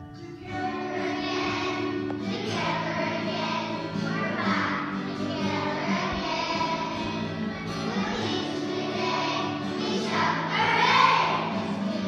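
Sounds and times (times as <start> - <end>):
children singing in unison: 0.3 - 12.0.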